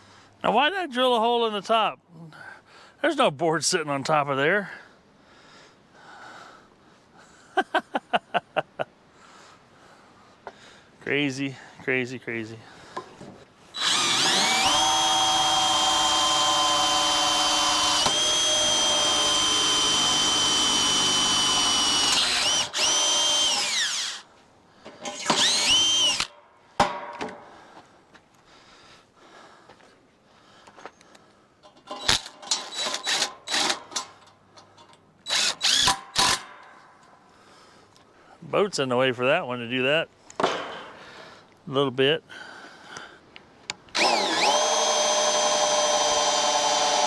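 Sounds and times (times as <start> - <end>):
cordless drill drilling into wood: 13.8 - 24.3, 25.1 - 26.3, 32.0 - 33.8, 35.2 - 36.4, 43.9 - 47.0.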